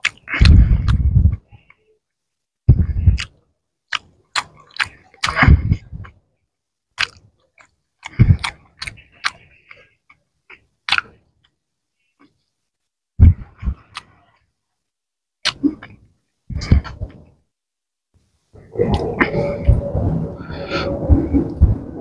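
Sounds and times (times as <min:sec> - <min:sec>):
close chewing with mouth smacks: 0:00.0 - 0:01.8, 0:03.0 - 0:06.2, 0:07.0 - 0:11.6, 0:13.4 - 0:14.5
low thuds: 0:18.6 - 0:22.0.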